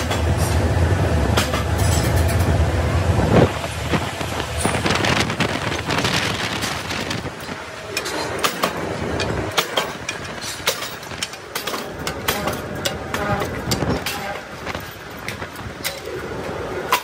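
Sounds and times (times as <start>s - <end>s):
rolling machine metallic clatter: 1.3s - 2.6s, 3.4s - 17.0s
sharp metal clanks: 8.0s - 14.4s.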